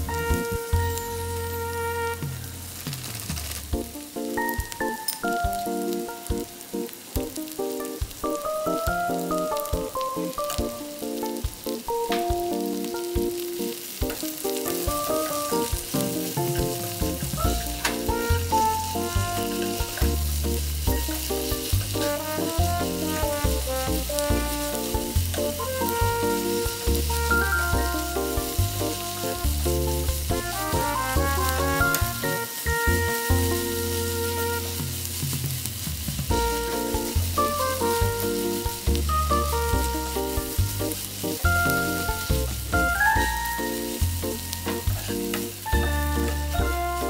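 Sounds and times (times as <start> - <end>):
background music: 0.0 - 47.0
food sizzling in frying pan: 0.1 - 47.0.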